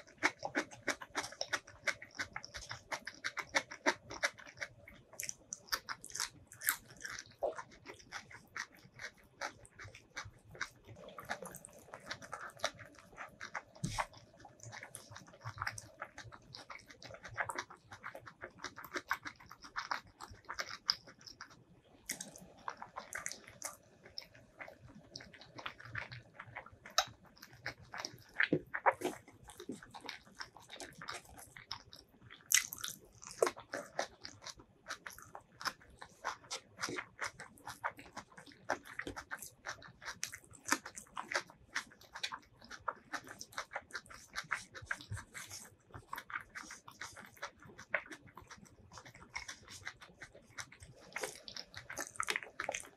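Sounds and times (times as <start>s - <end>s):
close chewing of rice: 0.0s - 52.9s.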